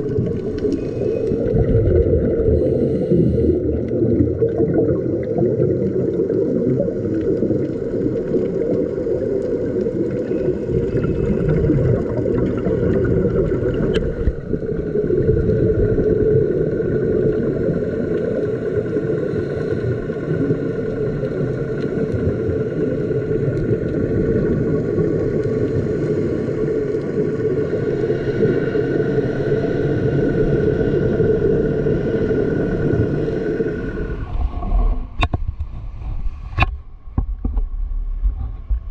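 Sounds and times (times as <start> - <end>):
boat engine rumbling: 0.0 - 5.3.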